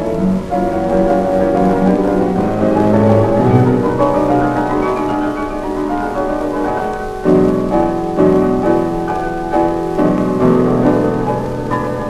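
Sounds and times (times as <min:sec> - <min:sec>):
slow instrumental music chords: 0:00.0 - 0:12.0.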